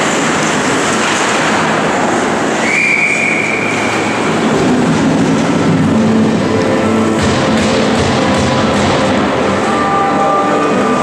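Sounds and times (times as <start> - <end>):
skates scraping on ice: 0.0 - 7.1
referee's whistle blast: 2.6 - 3.9.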